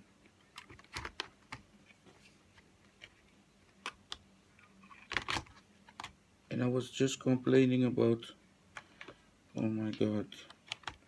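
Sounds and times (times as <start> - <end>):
laptop keyboard clicks: 10.6 - 11.0.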